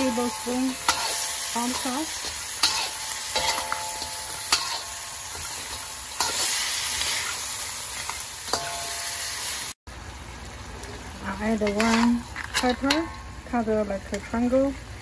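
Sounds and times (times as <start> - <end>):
metal spatula scraping a wok: 0.0 - 9.7, 11.6 - 13.1
wok ringing: 0.0 - 9.8, 11.2 - 14.7
food sizzling in hot oil: 0.0 - 15.0.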